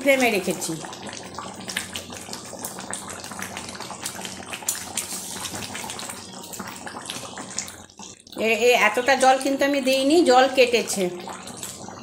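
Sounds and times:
curry boiling hard: 0.0 - 12.0.

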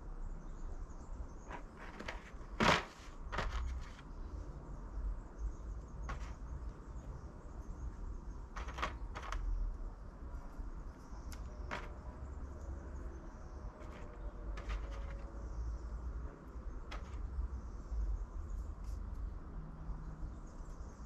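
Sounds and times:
plastic box rustling: 1.5 - 4.0, 6.1 - 6.4, 8.6 - 9.4, 11.7 - 12.0, 13.8 - 15.2
seeds clicking in plastic tray: 8.6 - 9.6, 11.2 - 12.0, 13.8 - 15.3.

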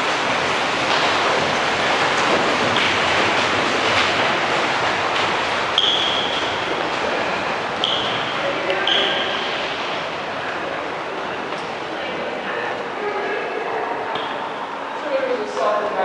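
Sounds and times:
running footfalls: 0.0 - 12.3
steady rushing noise: 0.0 - 16.0
short high squeaks: 5.8 - 6.6, 7.8 - 9.4.

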